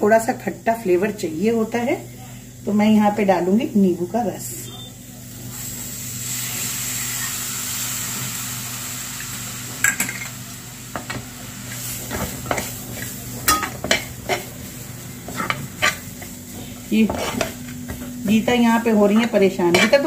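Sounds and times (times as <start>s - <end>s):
liquid sizzling in hot pan: 5.0s - 20.0s
spatula scraping metal pan: 19.2s - 20.0s.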